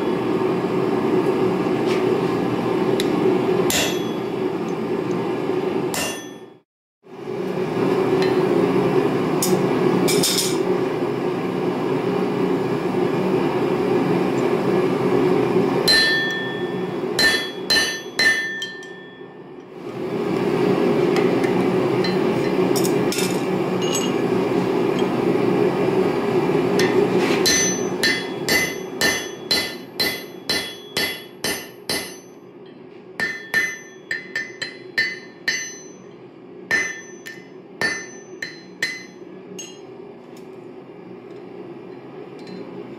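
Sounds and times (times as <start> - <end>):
hammer ringing on anvil: 3.7 - 4.4, 5.9 - 6.6, 15.8 - 19.5, 26.8 - 36.1, 36.7 - 39.9.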